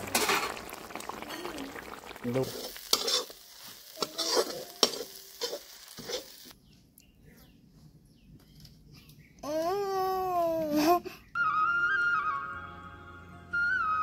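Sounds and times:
masala sizzling in a pan: 0.0s - 6.6s
metal spatula scraping a pan: 2.4s - 6.5s.

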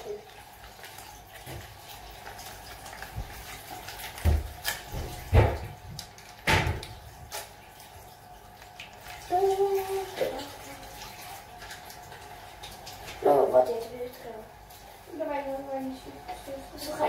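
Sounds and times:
running water hiss: 6.4s - 17.0s.

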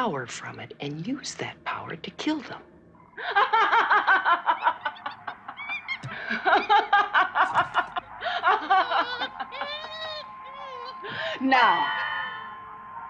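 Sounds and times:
woman laughing gleefully: 3.2s - 11.3s.

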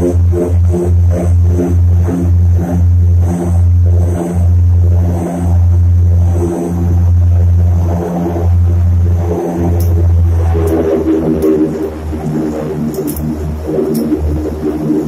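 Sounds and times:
aircraft engines droning: 0.0s - 15.0s.

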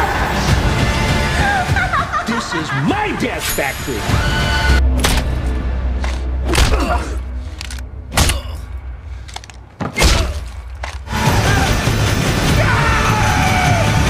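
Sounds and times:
low droning music: 3.5s - 14.0s.

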